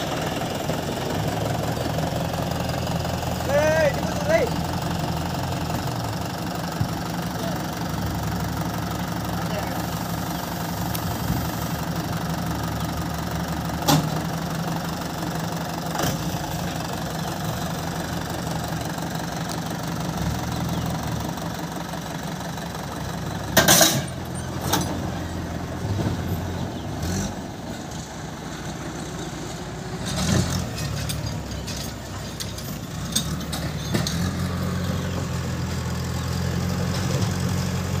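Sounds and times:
tractor diesel engine running: 0.0s - 38.0s
sharp metal clanks: 23.6s - 25.0s.

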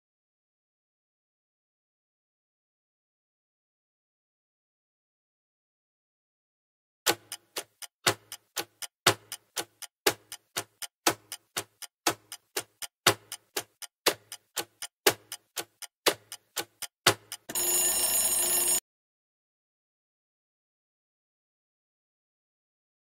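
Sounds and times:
clock ticking: 7.1s - 18.8s
ringing alarm tone: 17.5s - 18.8s.

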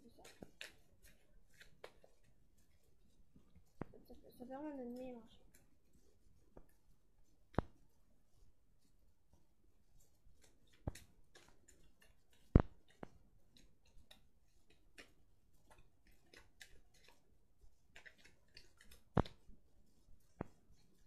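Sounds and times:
playing cards clicking and snapping: 10.4s - 17.2s, 17.9s - 19.6s.

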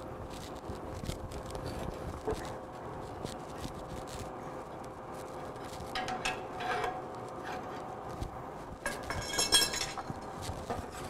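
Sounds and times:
faint hum: 0.0s - 11.0s.

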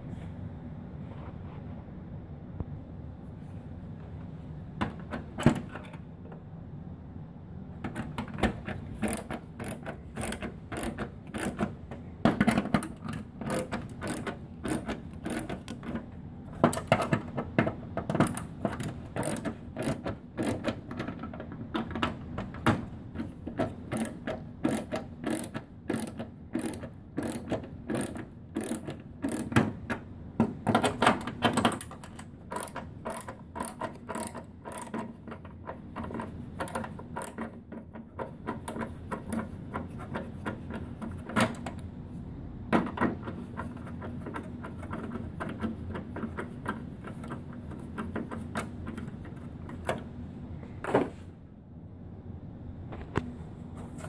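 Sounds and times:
screwdriver metallic clicks: 31.6s - 35.4s.

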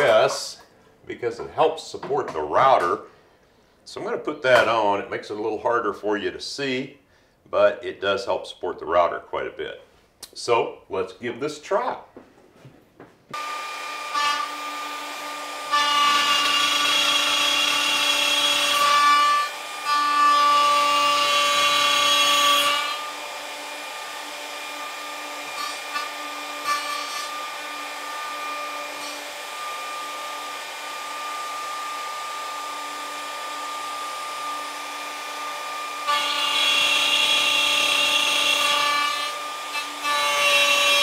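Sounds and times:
router cutting through wood: 13.4s - 41.0s
router whining: 13.4s - 41.0s.

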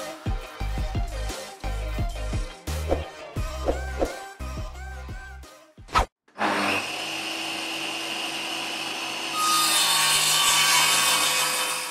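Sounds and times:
power tool cutting wood: 6.4s - 11.9s
power tool running: 6.4s - 11.9s.

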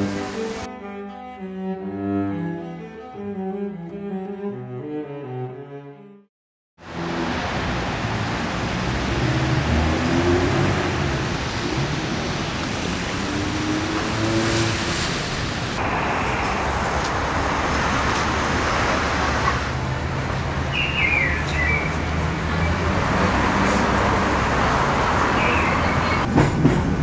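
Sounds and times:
cars passing on street: 0.0s - 0.7s, 6.8s - 27.0s.

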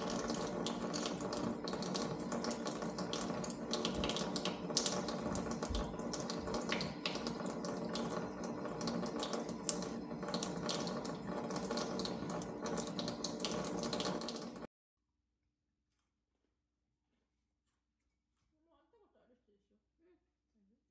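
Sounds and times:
motor hum: 0.0s - 14.7s.

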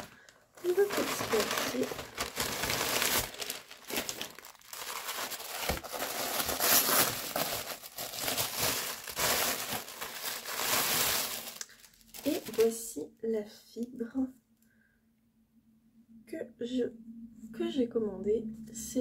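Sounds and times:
packaging crinkling and rustling: 0.0s - 12.9s.

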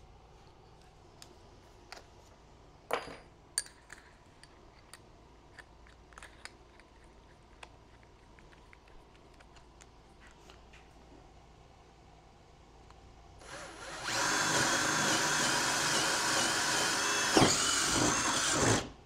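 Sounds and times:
tools clicking and knocking: 2.9s - 10.0s.

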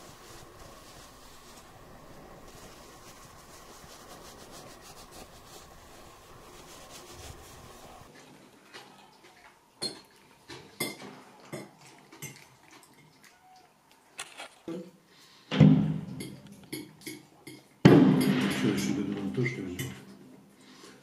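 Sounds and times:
towel rubbing wet fur: 0.0s - 8.1s
dishes and cutlery clinking: 9.8s - 13.1s, 16.1s - 20.1s.

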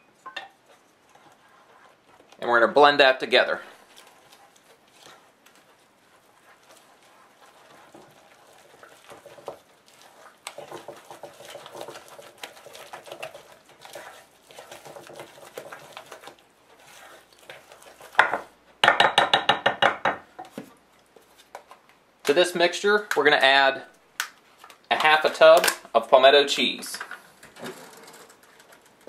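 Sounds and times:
spoon scraping mixing bowl: 0.3s - 18.8s.

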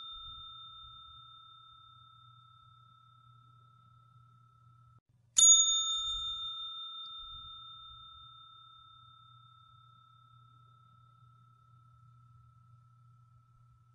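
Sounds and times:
bell-like ding: 0.0s - 4.0s, 5.4s - 11.1s
faint steady tone: 0.0s - 13.9s.

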